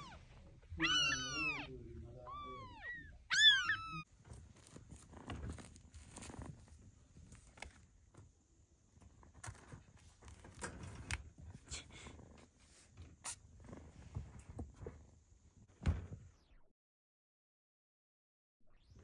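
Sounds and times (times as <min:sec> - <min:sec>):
kittens rustling and scratching: 0:03.4 - 0:16.2.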